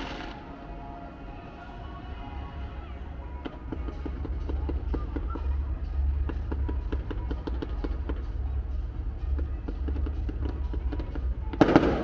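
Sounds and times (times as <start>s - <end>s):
fireworks popping and crackling: 0.0s - 0.4s, 3.4s - 12.0s
steady low rumble: 0.0s - 12.0s.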